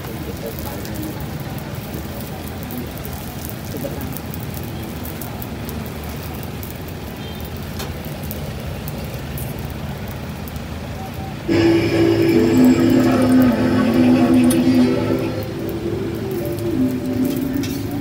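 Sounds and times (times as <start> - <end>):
flatbread sizzling in oil: 0.0 - 13.9.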